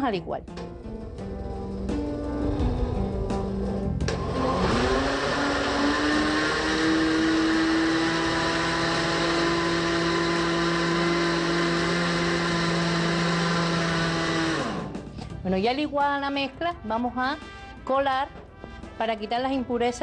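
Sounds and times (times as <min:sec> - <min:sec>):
electric blender whining: 0:00.9 - 0:15.2.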